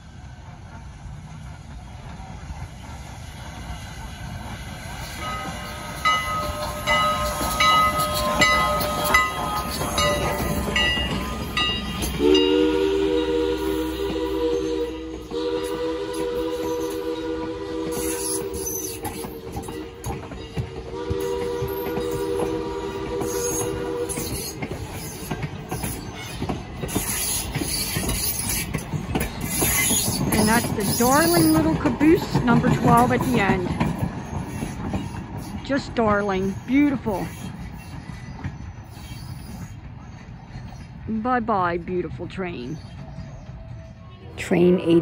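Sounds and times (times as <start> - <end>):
train wheels clicking over rail joints: 0.0 - 12.7, 13.6 - 44.0
steam locomotive whistle: 11.9 - 25.3.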